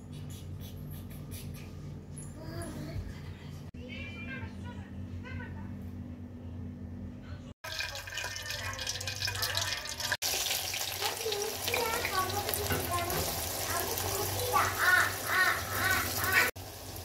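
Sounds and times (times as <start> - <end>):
oil sizzling with frying onions: 7.7 - 17.0.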